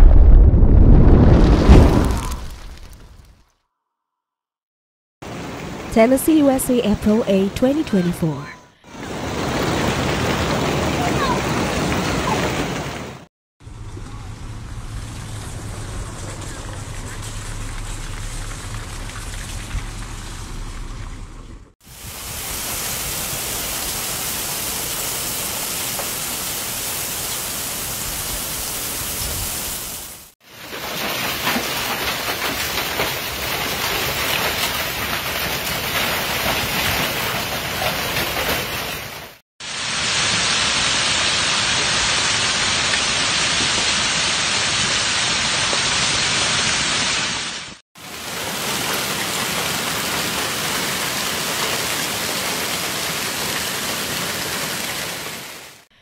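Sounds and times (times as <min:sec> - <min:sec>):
hail and heavy rain: 0:08.9 - 0:13.2, 0:21.9 - 0:55.9.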